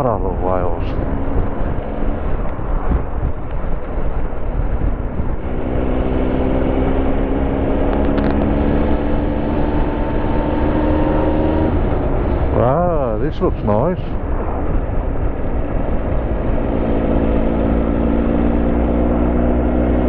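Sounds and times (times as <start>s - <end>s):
wind noise: 0.0s - 20.0s
motorcycle engine running: 1.0s - 12.8s.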